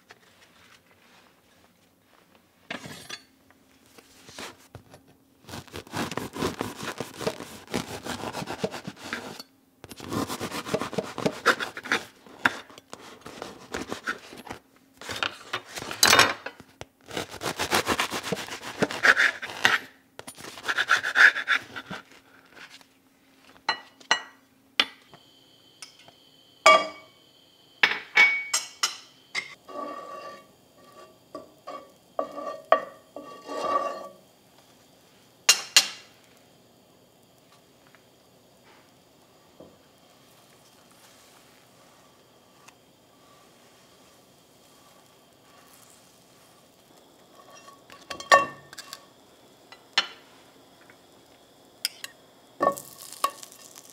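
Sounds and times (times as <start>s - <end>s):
bread knife sawing crusty loaf: 5.4s - 9.4s, 10.0s - 12.2s, 17.0s - 22.1s
knife and dishes clinking: 47.4s - 49.0s.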